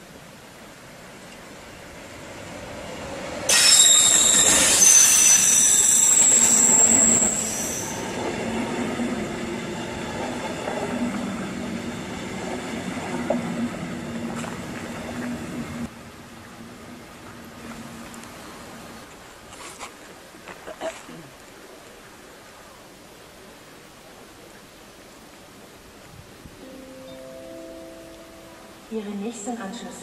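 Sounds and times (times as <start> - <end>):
train rushing past: 0.6 - 16.1
train coaches rumbling: 0.8 - 15.9
high wheel squeal: 3.5 - 8.5.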